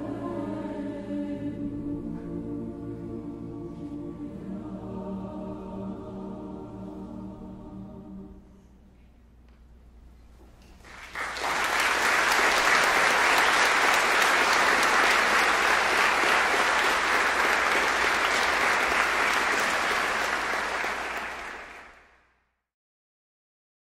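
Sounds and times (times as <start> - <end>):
audience applauding: 10.8 - 22.1.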